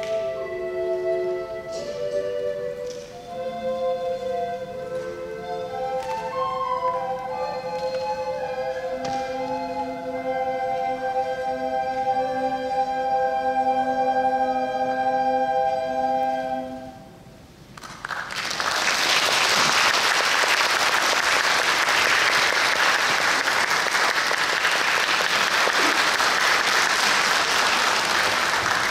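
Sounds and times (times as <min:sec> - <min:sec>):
audience applause: 0:17.8 - 0:28.9.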